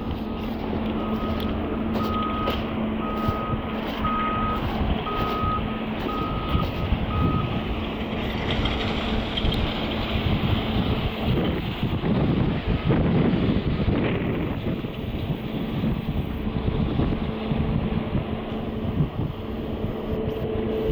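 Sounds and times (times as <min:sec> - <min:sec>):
street noise: 0:00.0 - 0:20.9
reversing alarm beeping: 0:01.0 - 0:07.6.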